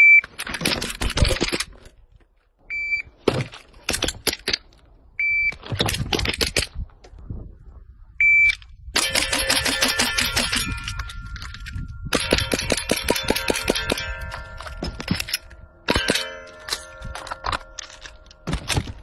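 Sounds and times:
steel targets ringing: 9.0s - 19.0s.

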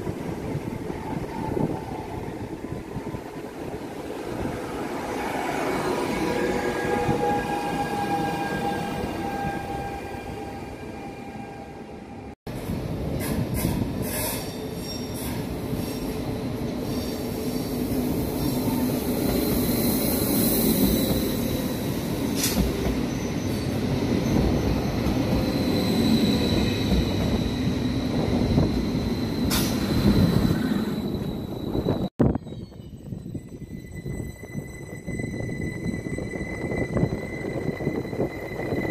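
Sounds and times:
train wheels rumbling on rail: 12.5s - 32.1s
high-pitched wheel squeal: 23.0s - 38.9s.

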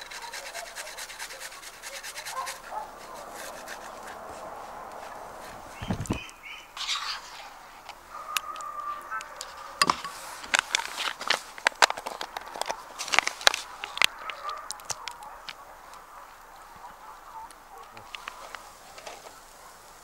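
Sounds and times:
short bird calls: 1.9s - 9.8s.

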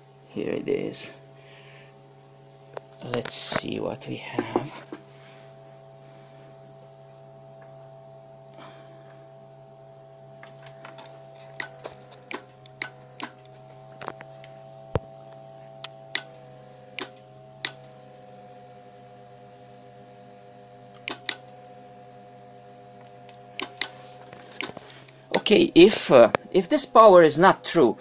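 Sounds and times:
amplifier electrical hum and whine: 0.0s - 28.0s
sharp clicks: 15.8s - 16.4s, 17.0s - 17.9s, 21.0s - 21.5s, 23.6s - 24.0s.

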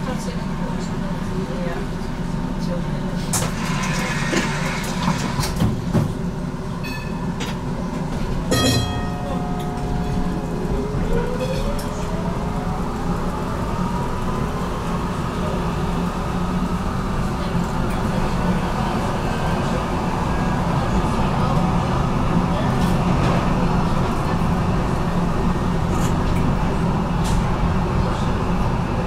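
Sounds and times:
tram wheels rumbling: 0.0s - 29.0s.

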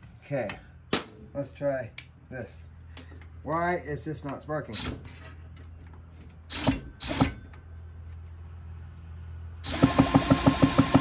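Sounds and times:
drill spinning chainsaw engine: 9.6s - 11.0s.

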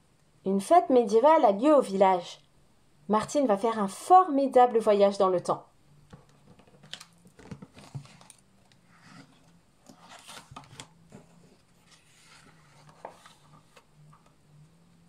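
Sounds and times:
book pages turning: 6.2s - 14.4s.

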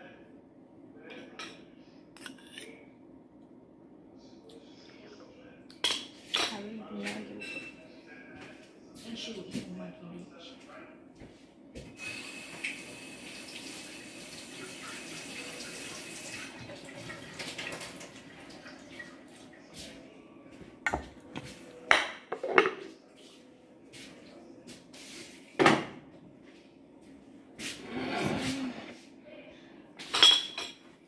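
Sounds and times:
water running from tap: 12.0s - 19.6s.

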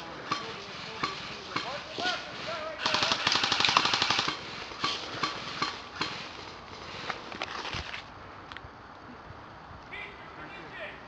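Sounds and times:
airsoft rifle full-auto burst: 2.6s - 4.9s.

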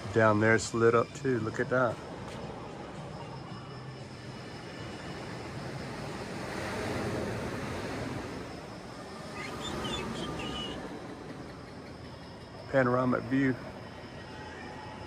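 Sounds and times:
sea surf rushing: 4.0s - 15.0s.

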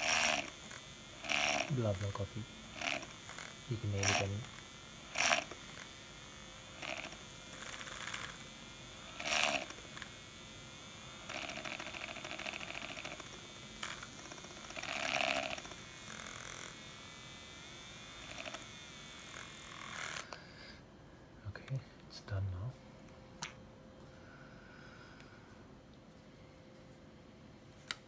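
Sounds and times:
milk frother whirring: 0.0s - 20.5s.

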